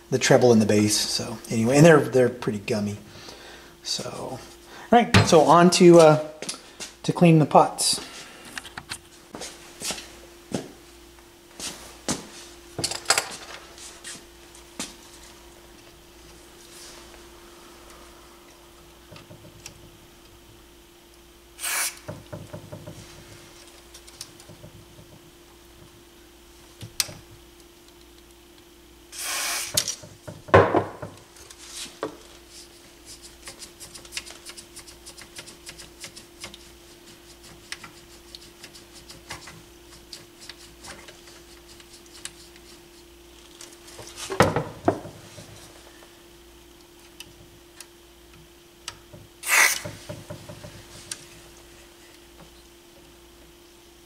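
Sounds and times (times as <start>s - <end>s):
faint steady hum: 0.0s - 54.0s
aerosol spray hisses: 21.6s - 22.0s, 29.1s - 29.8s.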